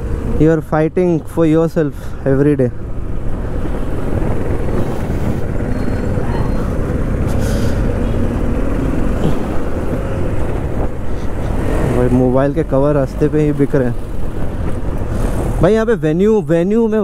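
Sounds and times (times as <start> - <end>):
wind rush on microphone: 2.9 - 12.1.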